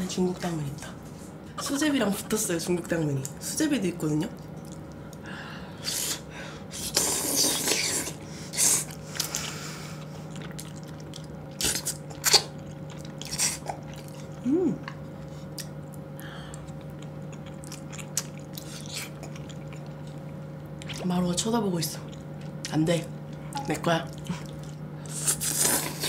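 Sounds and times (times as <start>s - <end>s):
faint steady hum: 0.0s - 26.0s
chewing with clicks and smacks: 4.2s - 5.2s, 8.9s - 21.1s, 22.0s - 26.0s
wet slurping: 5.8s - 14.4s, 23.5s - 26.0s.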